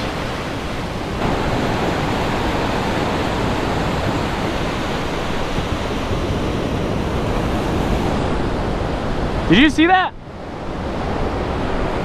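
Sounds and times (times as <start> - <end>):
ocean surf breaking: 0.0 - 12.0.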